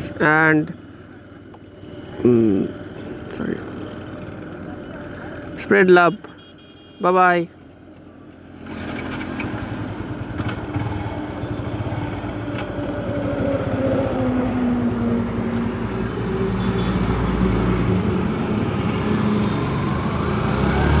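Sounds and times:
motorcycle engine accelerating: 0:08.5 - 0:21.0.

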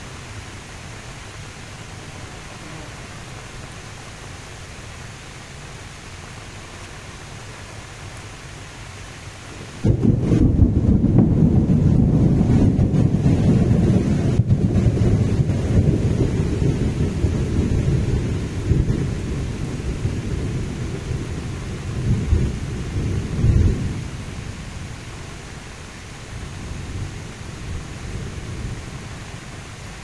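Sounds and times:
wind buffeting microphone: 0:09.8 - 0:24.9.

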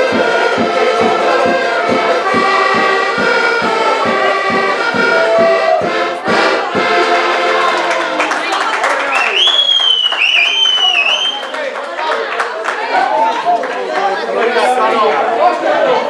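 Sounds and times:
steady bass beat: 0:00.0 - 0:07.1
accordions playing folk tune: 0:00.0 - 0:08.6.

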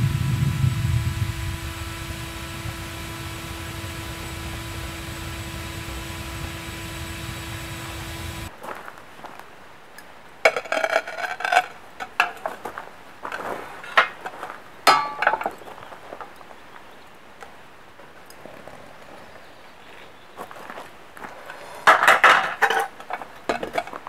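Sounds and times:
metal crucible clanking: 0:14.9 - 0:15.6.

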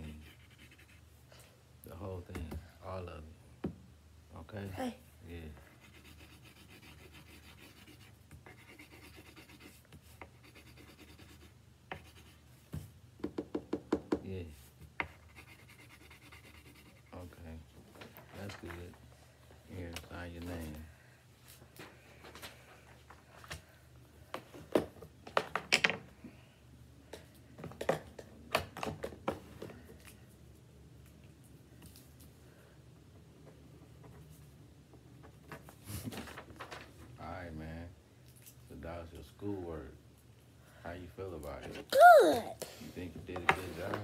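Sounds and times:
coloring stick scribbling on paper: 0:00.0 - 0:01.1, 0:05.6 - 0:12.4, 0:15.0 - 0:17.2.

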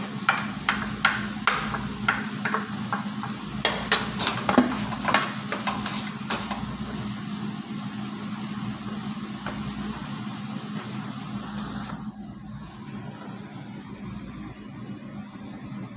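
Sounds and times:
utensil scraping frying pan: 0:00.0 - 0:07.1
steady low hum: 0:00.0 - 0:15.9.

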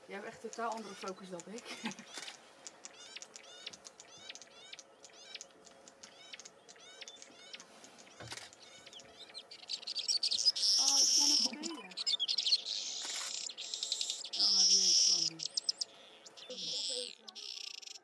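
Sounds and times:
harsh buzzing bird calls: 0:00.0 - 0:18.0
bird chirps: 0:00.1 - 0:18.0.

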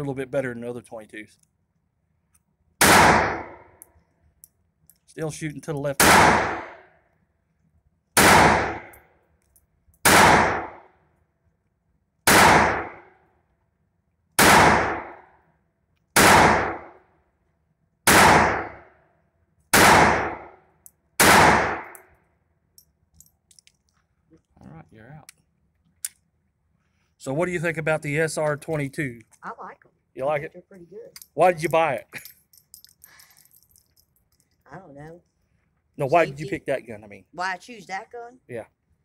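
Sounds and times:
pistol shots: 0:02.8 - 0:03.6, 0:06.0 - 0:06.8, 0:08.2 - 0:09.0, 0:10.0 - 0:10.8, 0:12.3 - 0:13.1, 0:14.4 - 0:15.3, 0:16.2 - 0:17.0, 0:18.1 - 0:18.8, 0:19.7 - 0:20.6, 0:21.2 - 0:22.0.

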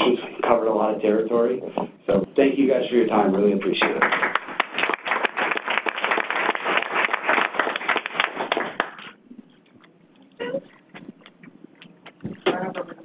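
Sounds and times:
audience applauding: 0:03.8 - 0:09.2.

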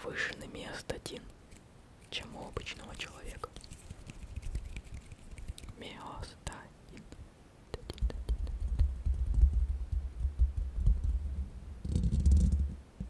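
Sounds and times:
microphone handling rumble: 0:08.4 - 0:12.8.

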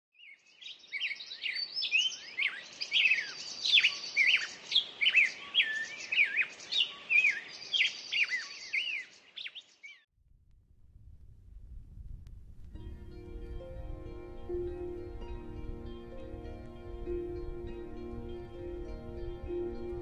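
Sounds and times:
songbirds singing: 0:00.1 - 0:10.1.

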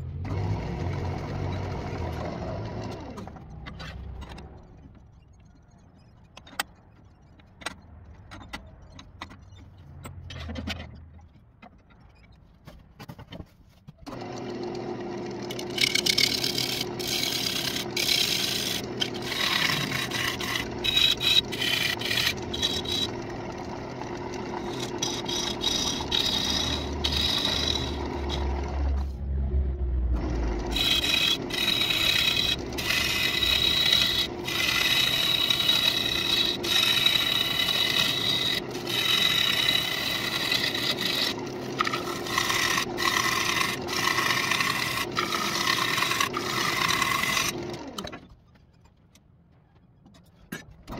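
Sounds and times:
gouge scraping wood on lathe: 0:14.1 - 0:29.2, 0:30.2 - 0:48.1
lathe motor humming: 0:14.1 - 0:29.2, 0:30.2 - 0:48.1.

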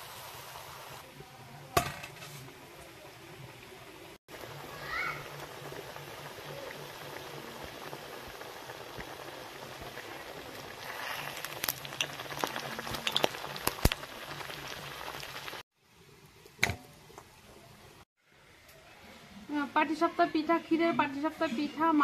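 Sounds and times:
batter sizzling in hot oil: 0:00.0 - 0:01.1, 0:01.9 - 0:18.0
oil crackling and popping: 0:04.4 - 0:15.6.

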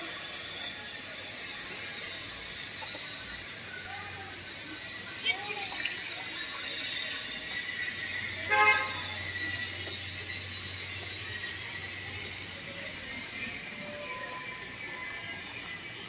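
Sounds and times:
horn toot: 0:08.5 - 0:09.1.

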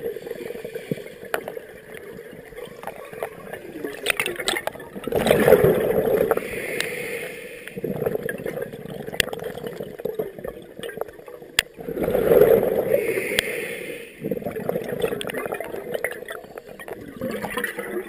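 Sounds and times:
exhaled bubbles underwater: 0:00.0 - 0:18.0
regulator inhale hiss: 0:06.3 - 0:07.8, 0:12.9 - 0:14.3.

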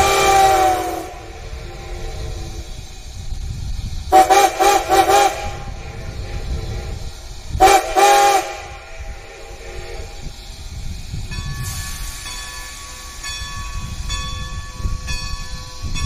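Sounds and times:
steam whistle blasts: 0:00.0 - 0:02.9, 0:04.1 - 0:10.3
locomotive low rumble: 0:00.0 - 0:16.0
crossing warning bell ringing: 0:11.3 - 0:16.0.

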